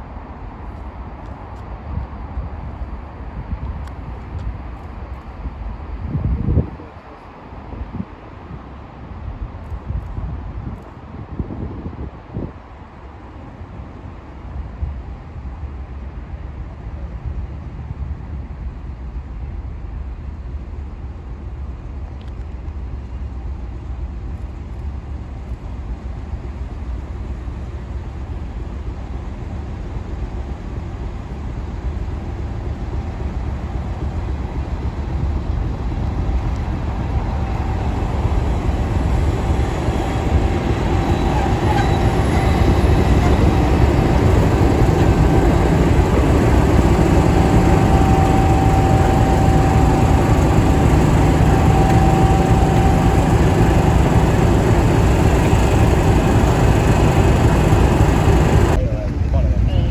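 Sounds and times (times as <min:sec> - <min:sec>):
diesel locomotive engine: 0:00.0 - 0:59.9
thin steady whine: 0:36.2 - 0:58.9.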